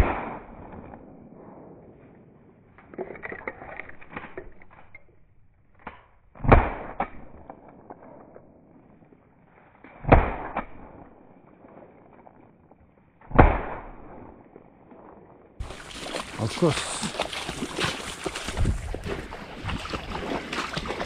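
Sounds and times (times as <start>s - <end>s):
shotgun shots: 0.0s - 1.2s, 6.4s - 7.4s, 10.0s - 11.0s, 13.2s - 14.3s.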